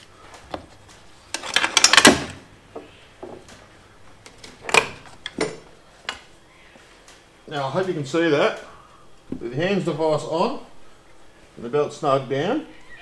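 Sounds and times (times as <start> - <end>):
metal belt hardware clattering: 1.3 - 2.2.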